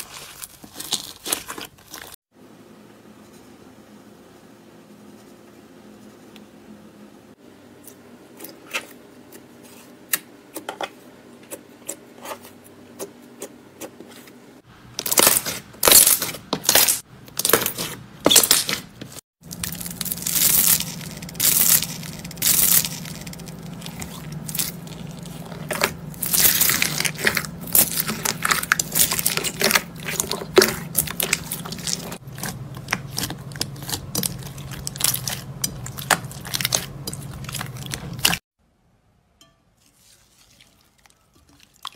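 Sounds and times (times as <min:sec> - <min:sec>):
slime crackling and popping: 0:19.4 - 0:38.4.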